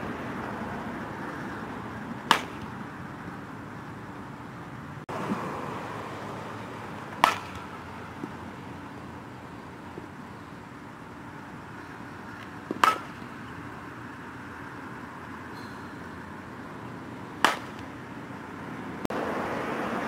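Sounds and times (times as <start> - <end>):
bat striking ball: 2.2 - 2.8, 7.0 - 8.4, 11.7 - 13.6, 17.4 - 18.0.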